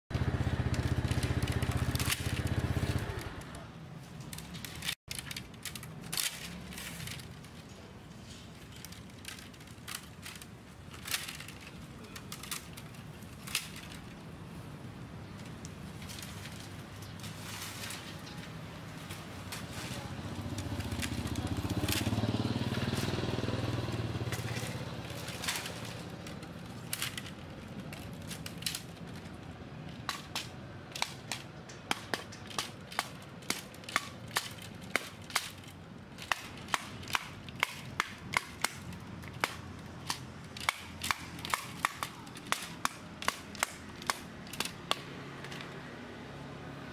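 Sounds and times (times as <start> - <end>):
passing vehicle engine hum: 0.1 - 3.8, 15.9 - 28.0, 36.6 - 46.9
wooden block beating bamboo: 29.9 - 45.7.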